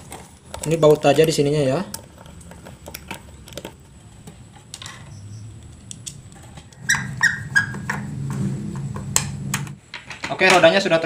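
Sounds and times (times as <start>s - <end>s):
low steady hum: 0.0s - 10.3s
short high squeaks: 6.7s - 8.2s.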